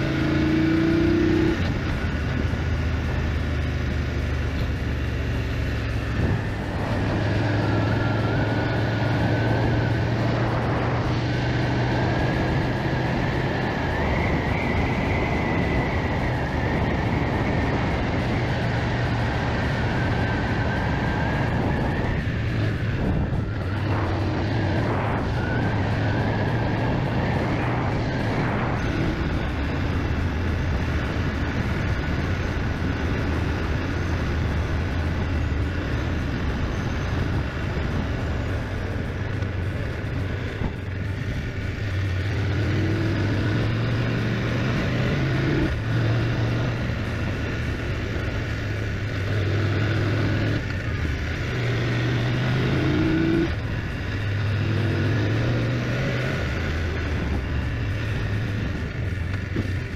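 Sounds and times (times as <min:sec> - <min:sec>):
motorcycle engine running: 0:00.0 - 0:59.9
wind rushing: 0:06.1 - 0:39.6.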